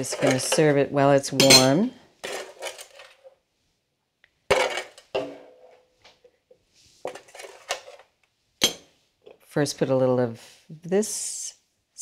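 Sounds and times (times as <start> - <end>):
kitchenware clinking and knocking: 0.0 - 3.2, 4.5 - 5.8, 8.6 - 8.9.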